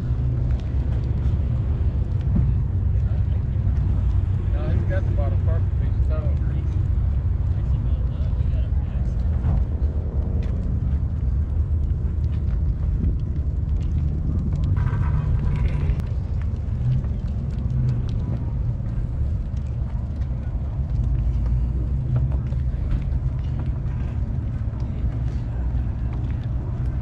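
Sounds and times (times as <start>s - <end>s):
low outdoor rumble: 0.0s - 27.0s.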